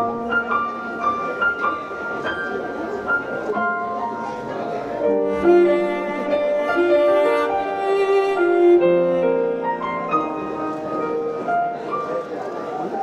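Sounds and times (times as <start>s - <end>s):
piano: 0.0s - 13.0s
slow bowed strings: 4.5s - 11.9s.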